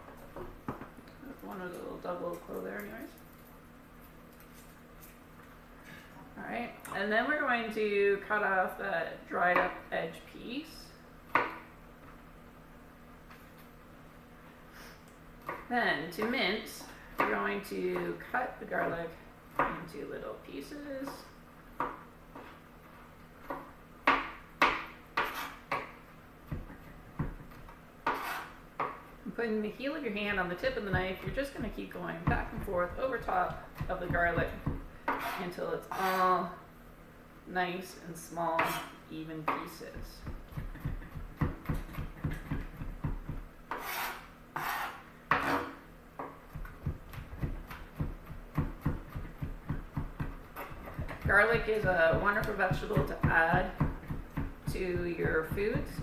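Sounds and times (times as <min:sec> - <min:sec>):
knife chopping on cutting board: 0:23.4 - 0:25.9, 0:40.2 - 0:56.0
knife scraping cutting board: 0:25.2 - 0:25.7, 0:28.0 - 0:28.6, 0:35.1 - 0:36.4, 0:38.6 - 0:39.0, 0:43.7 - 0:45.8.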